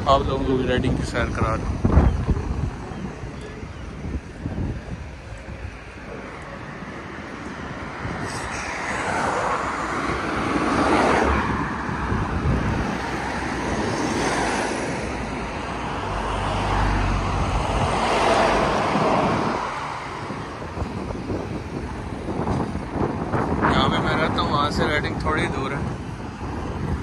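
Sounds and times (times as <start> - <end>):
heavy vehicle rumble: 0.0 - 27.0
road traffic passing: 0.0 - 27.0.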